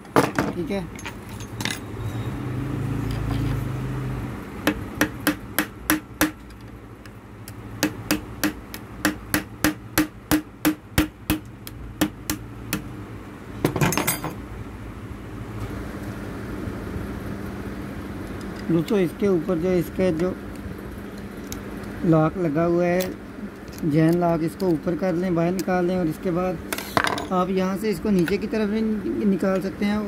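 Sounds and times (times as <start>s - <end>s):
hammer striking metal: 7.8s - 12.9s.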